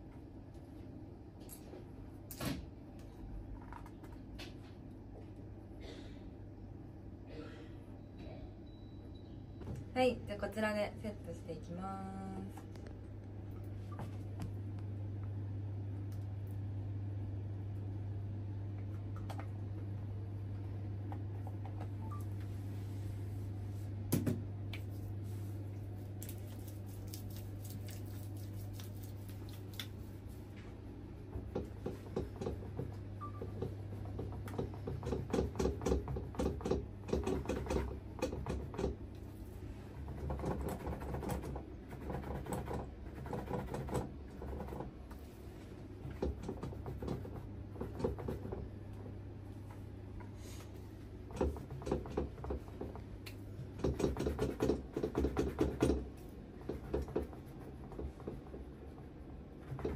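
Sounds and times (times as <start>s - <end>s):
fingers rustling through hair: 24.9s - 30.4s.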